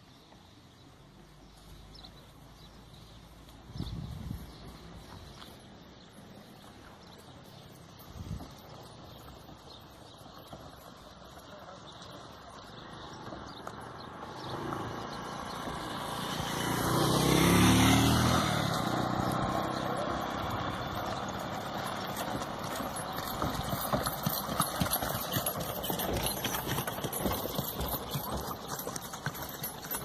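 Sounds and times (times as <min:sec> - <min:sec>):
hooves clicking and knocking: 0:00.2 - 0:30.0
vehicle driving past: 0:14.0 - 0:22.6.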